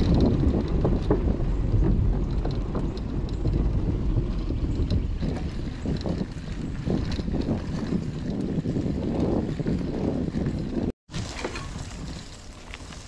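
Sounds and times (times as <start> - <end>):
bike clicking and rattling: 0.0 - 13.0
bike tyres rumbling: 0.0 - 13.0
wind buffeting microphone: 0.0 - 13.0.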